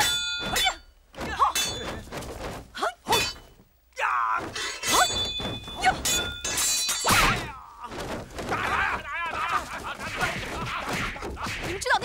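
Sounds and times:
metal blades clanging: 0.0s - 0.9s, 1.5s - 2.2s, 4.5s - 7.6s
hits and thuds: 0.0s - 3.6s, 4.4s - 12.0s
shouts and grunts: 4.0s - 5.0s, 7.1s - 12.0s.

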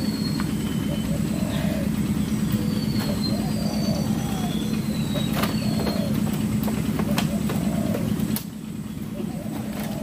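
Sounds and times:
faint high bird whistles: 0.0s - 1.6s, 2.2s - 6.2s
birds cooing: 0.0s - 10.0s.

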